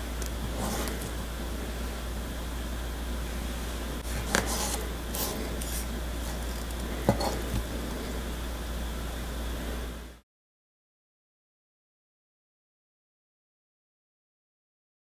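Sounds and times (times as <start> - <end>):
steady low hum: 0.0 - 10.2
wooden fork scraping ceramic plate: 0.4 - 1.2, 4.0 - 8.1.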